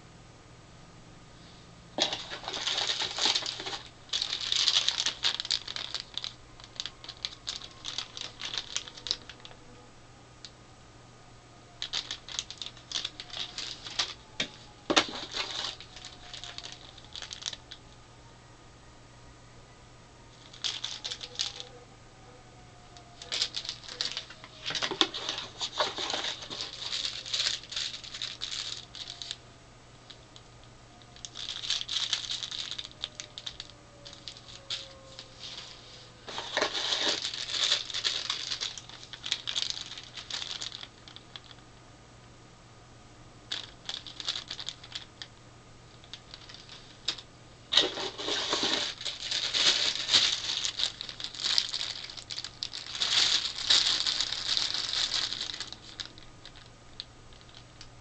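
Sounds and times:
plastic bags crinkling: 2.0s - 9.7s, 11.7s - 17.9s, 20.3s - 21.8s, 23.0s - 29.4s, 30.1s - 41.6s, 43.5s - 45.4s, 46.0s - 57.9s.

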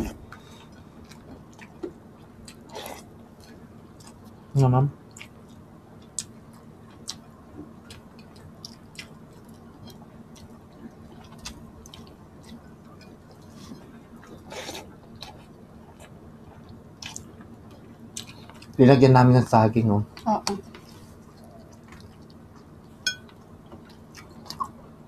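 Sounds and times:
person chewing: 0.0s - 4.4s, 5.1s - 18.8s, 20.7s - 24.8s
faint low hum: 0.0s - 25.0s.

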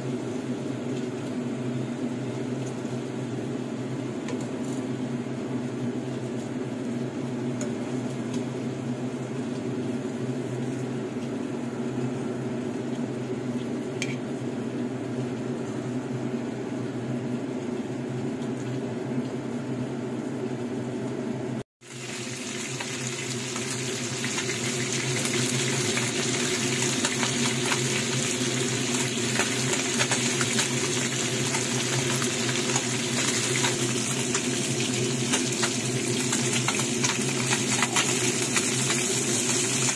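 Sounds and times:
kitchen appliance hum: 0.0s - 39.9s
fish frying in hot oil: 21.8s - 39.9s.

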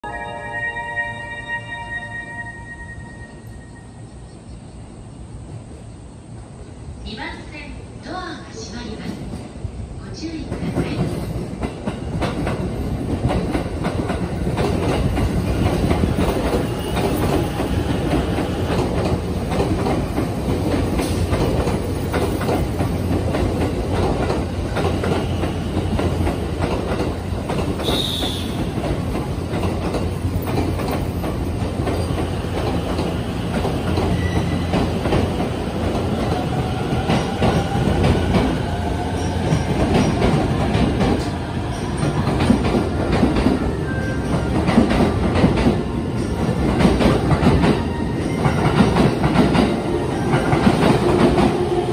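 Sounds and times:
train wheels clicking over rail joints: 10.6s - 38.6s, 44.2s - 51.7s.

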